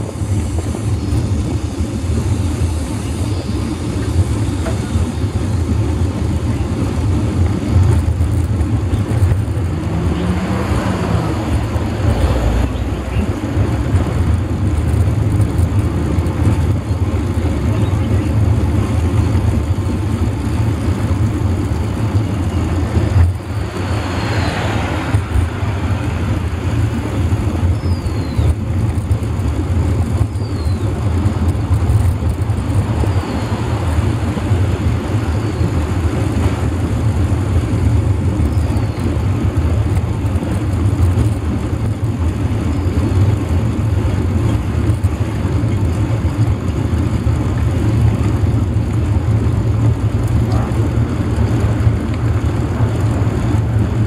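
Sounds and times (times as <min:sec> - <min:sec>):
motor traffic passing: 0:00.0 - 0:54.0
wind and road noise rumble: 0:00.0 - 0:54.0.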